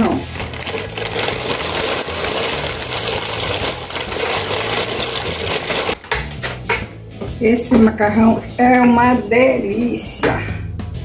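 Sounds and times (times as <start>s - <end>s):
broth boiling: 0.0s - 6.0s
dry pasta rattling: 0.0s - 6.0s
plastic packet crinkling: 0.0s - 6.0s.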